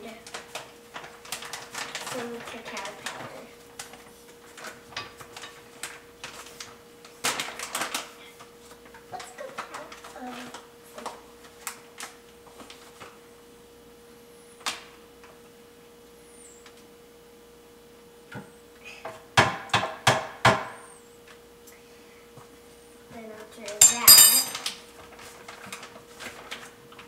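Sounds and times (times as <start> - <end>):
faint steady hum: 20.9 - 24.7
metal spoon knocking on blender jar: 23.8 - 24.6.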